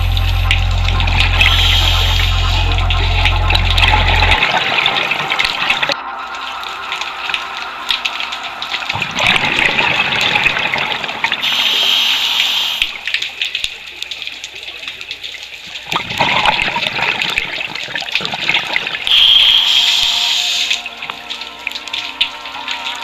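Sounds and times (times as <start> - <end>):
steady low hum: 0.0 - 8.8
underwater regulator bubbles: 0.0 - 22.4.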